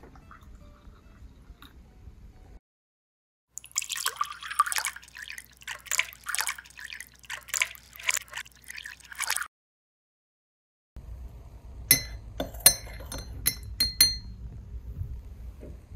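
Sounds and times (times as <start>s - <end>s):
water dripping and splashing: 3.6s - 9.5s.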